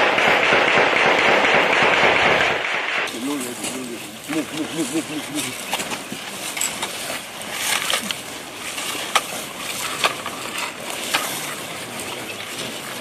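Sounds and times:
sharp cracks: 0:00.0 - 0:06.0
gravel crunching under crawling: 0:03.1 - 0:13.0.

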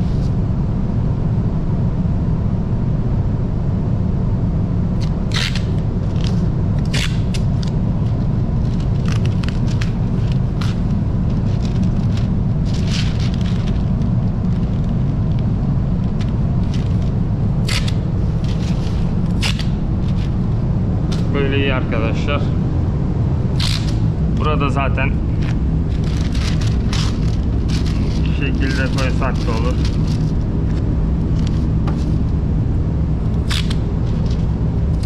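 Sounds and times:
low machine rumble: 0:00.0 - 0:35.0
masking tape ripping: 0:05.0 - 0:07.8, 0:17.6 - 0:20.4, 0:23.6 - 0:24.0, 0:25.4 - 0:32.2, 0:33.4 - 0:35.0
paper rustling: 0:08.6 - 0:15.2, 0:16.0 - 0:20.4, 0:25.4 - 0:32.2.

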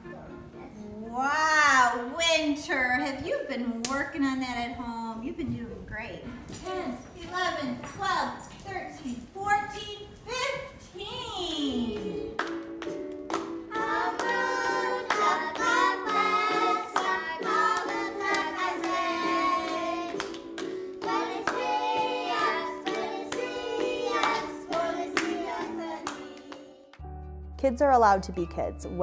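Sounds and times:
musical accompaniment: 0:00.0 - 0:01.5, 0:11.9 - 0:29.0
children's song singing: 0:11.7 - 0:27.0
hand claps: 0:12.0 - 0:27.0.

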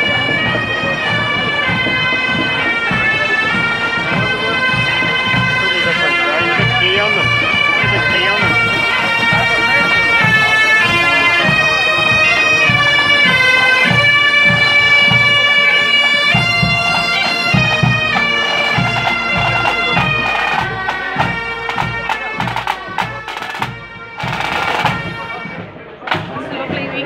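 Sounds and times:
bagpipes playing a tune: 0:00.0 - 0:26.0
bass drum beating: 0:06.5 - 0:25.2
snare drums rattling: 0:13.8 - 0:25.2.

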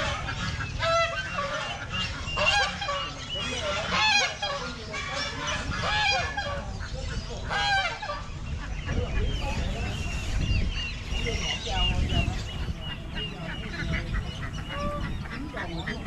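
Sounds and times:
poultry harsh calls: 0:00.0 - 0:16.0.

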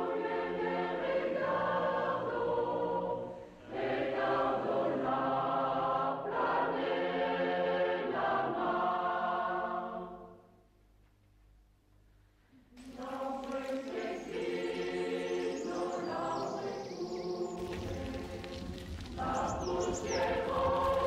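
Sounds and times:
choir singing chords: 0:00.0 - 0:10.6, 0:12.8 - 0:21.0.

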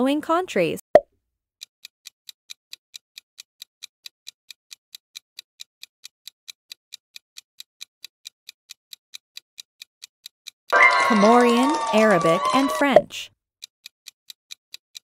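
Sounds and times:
clock ticking fast: 0:02.0 - 0:15.0.

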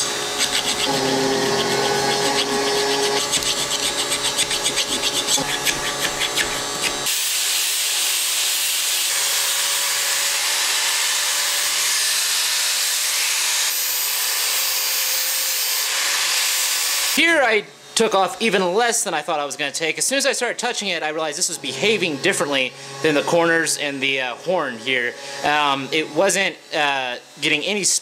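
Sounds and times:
hand file rasping on metal: 0:00.0 - 0:07.2
angle grinder grinding metal: 0:00.0 - 0:18.7, 0:20.0 - 0:28.0.

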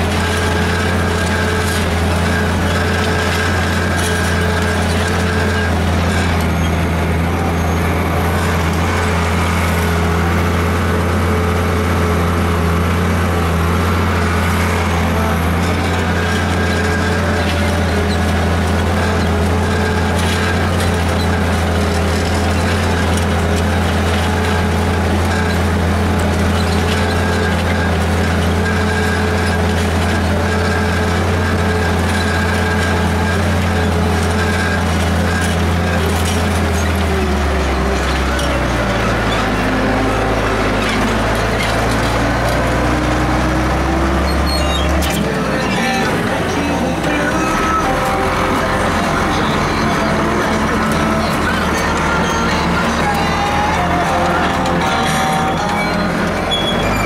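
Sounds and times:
tractor engine under load: 0:00.0 - 0:57.0.

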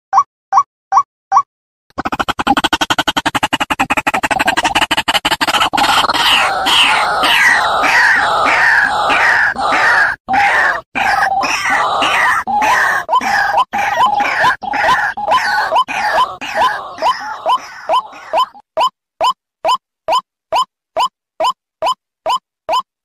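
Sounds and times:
waterhen harsh croaking calls: 0:02.0 - 0:18.6.

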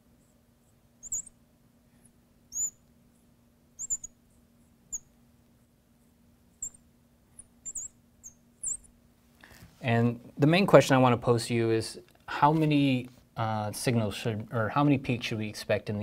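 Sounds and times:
faint steady hum: 0:00.0 - 0:16.0
marker squeaking on glass: 0:01.0 - 0:01.3, 0:02.5 - 0:02.8, 0:03.8 - 0:04.1, 0:06.6 - 0:06.8, 0:07.6 - 0:08.9.

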